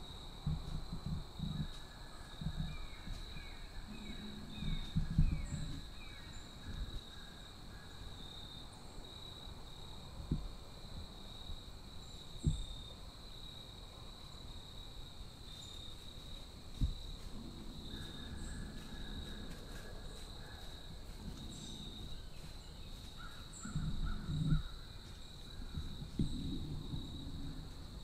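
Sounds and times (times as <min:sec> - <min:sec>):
high insect drone: 0:00.0 - 0:28.0
deer stepping through dry leaves: 0:16.0 - 0:24.2.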